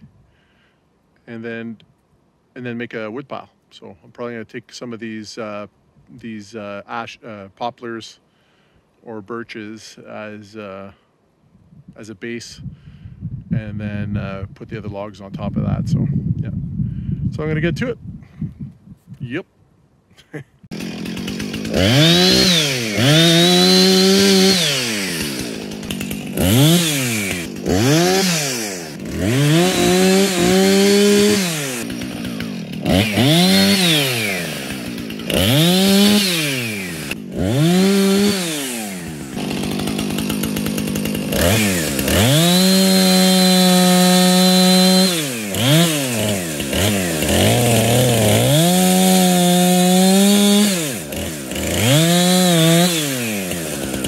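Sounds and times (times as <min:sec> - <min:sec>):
chainsaw revving and cutting: 0:20.7 - 0:54.0.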